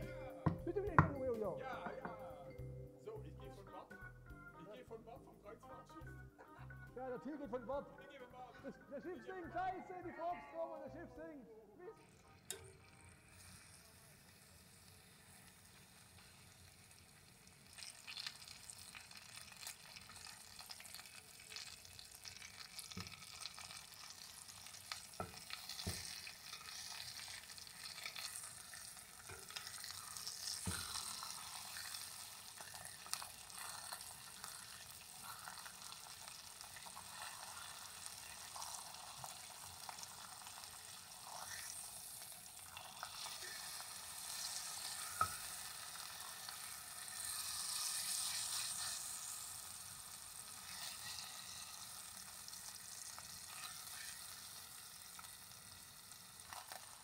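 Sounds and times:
meat sizzling in a pot: 0.0 - 6.6, 12.0 - 57.0
metal tongs clicking: 12.5 - 12.7.

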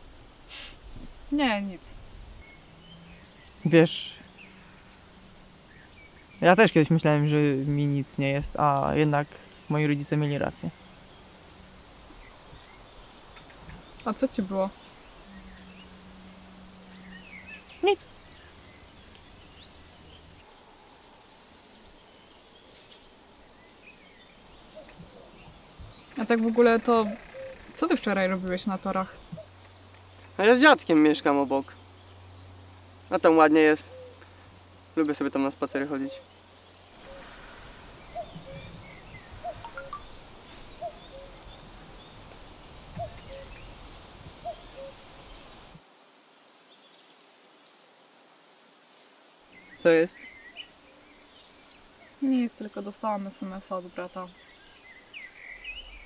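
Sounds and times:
faint bird chirps: 0.4 - 45.8, 49.5 - 56.0
cuckoo calling: 9.3 - 22.1, 24.4 - 29.7, 33.7 - 34.4, 35.8 - 36.4, 37.0 - 45.7.

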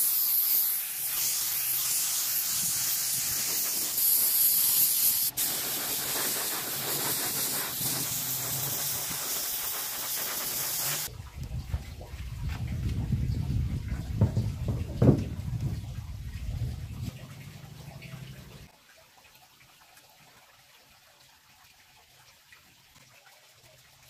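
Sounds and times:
spraying hiss: 0.0 - 11.1.

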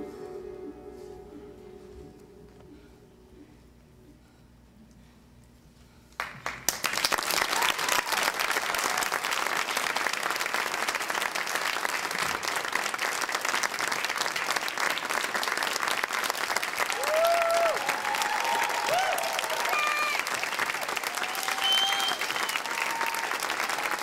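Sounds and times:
audience applause: 6.2 - 24.0.

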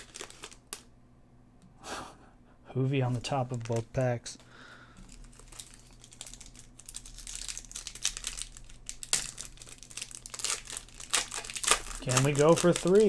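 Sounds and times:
foil wrapper crinkling and tearing: 0.0 - 0.9, 5.0 - 13.0.

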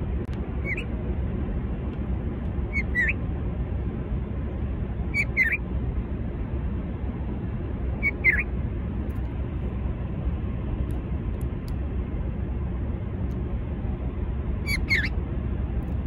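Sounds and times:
steady low rumble: 0.0 - 16.0
bird calling: 0.6 - 0.9, 2.7 - 3.2, 5.1 - 5.6, 8.0 - 8.5, 14.7 - 15.2.

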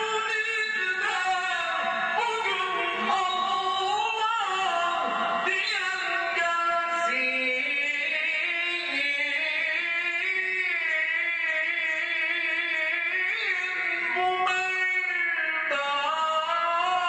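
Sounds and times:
man singing religious chant: 0.0 - 17.0.

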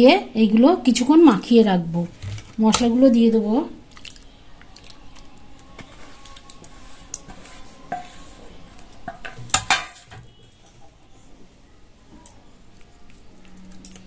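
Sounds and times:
metal spoon scraping a steel bowl: 5.8 - 11.0.

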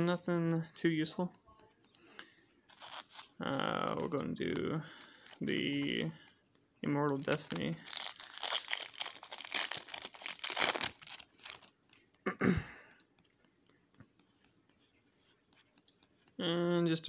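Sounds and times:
cards ticking and rustling: 0.0 - 17.0
foil wrapper tearing and crinkling: 2.7 - 3.3, 7.2 - 11.7.

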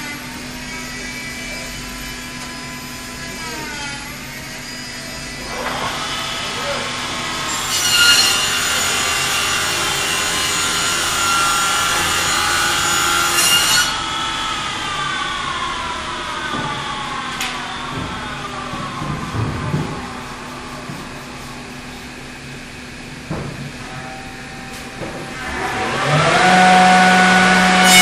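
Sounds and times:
saws cutting wooden door: 2.3 - 19.0, 25.2 - 28.0
saws whining freely: 24.4 - 28.0.

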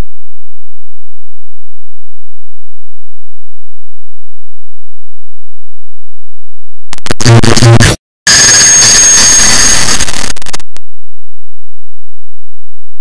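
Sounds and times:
buzzy distorted digital noise burst: 7.0 - 10.6.

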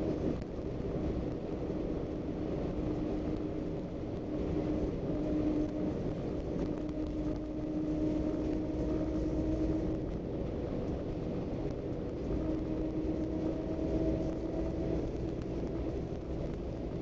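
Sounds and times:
diesel engine drone: 0.0 - 17.0
road rumble: 0.0 - 17.0.

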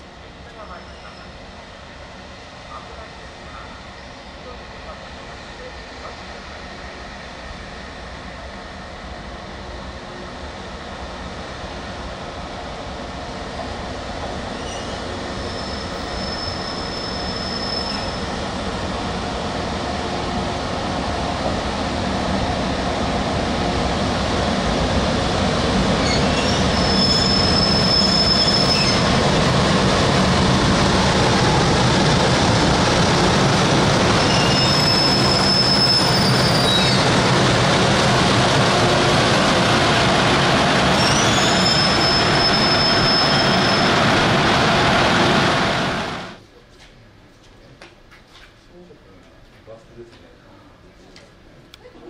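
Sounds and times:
locomotive rumbling past: 13.1 - 46.4
high-pitched wheel squeal: 14.6 - 18.2, 26.0 - 29.0, 34.2 - 37.1, 41.0 - 43.9.

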